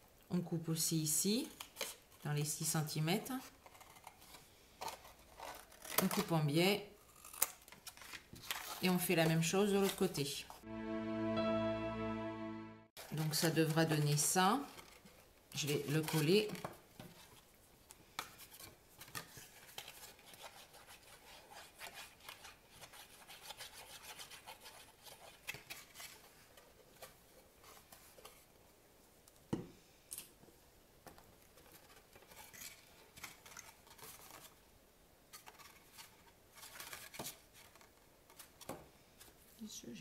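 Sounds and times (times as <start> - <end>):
cardstock rustling and rubbing: 35.3 - 38.6.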